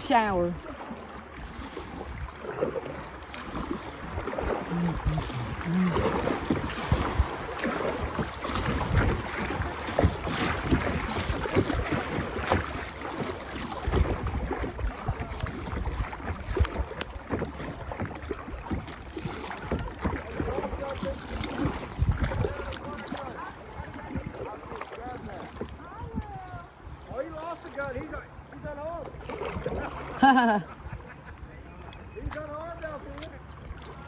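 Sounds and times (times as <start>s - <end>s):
paddle splashing in water: 0.0s - 34.0s
wind buffeting microphone: 3.7s - 27.4s.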